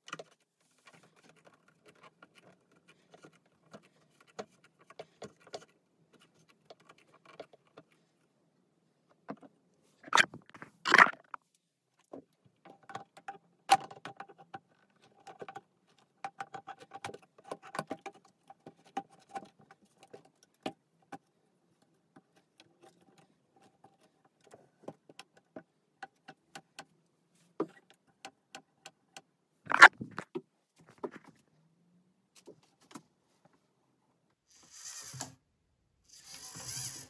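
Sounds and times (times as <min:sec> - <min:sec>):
plastic and metal parts clicking: 0:00.0 - 0:08.0.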